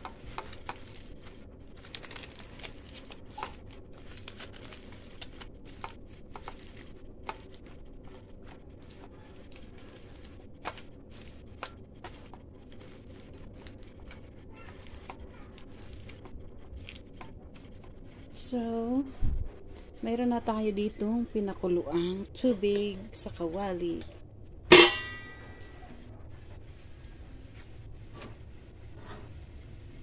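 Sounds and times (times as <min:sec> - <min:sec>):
aluminium foil crinkling: 0:00.0 - 0:18.3.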